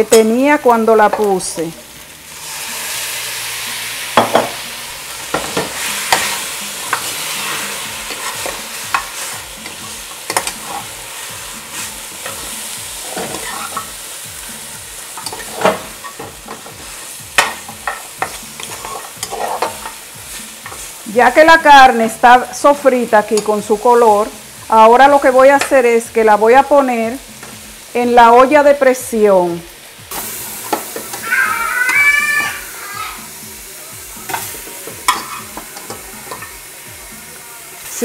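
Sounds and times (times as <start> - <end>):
meat sizzling in a pot: 0.0 - 38.0
metal spoon scraping a pot: 5.4 - 11.0, 11.7 - 13.9, 17.8 - 19.9.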